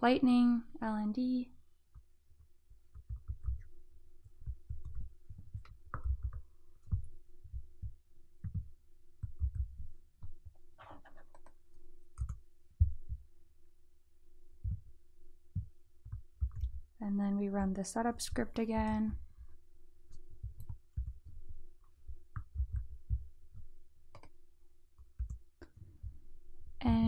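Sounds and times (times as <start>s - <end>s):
faint steady hum: 0.0s - 27.0s
keyboard and mouse clicks: 4.3s - 7.2s, 7.8s - 13.0s, 15.6s - 16.8s, 18.1s - 19.2s, 22.3s - 24.4s.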